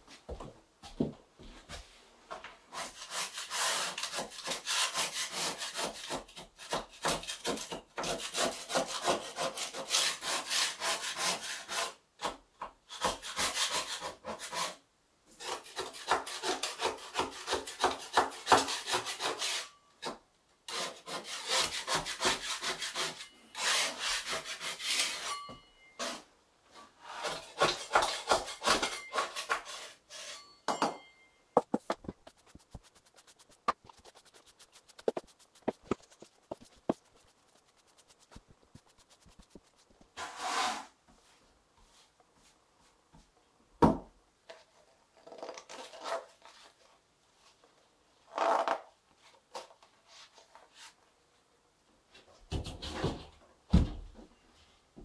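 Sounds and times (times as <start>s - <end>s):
hand scraper rasping: 2.7s - 12.0s, 15.4s - 19.7s, 20.7s - 25.4s, 31.7s - 40.8s
broom sweeps: 31.9s - 42.6s.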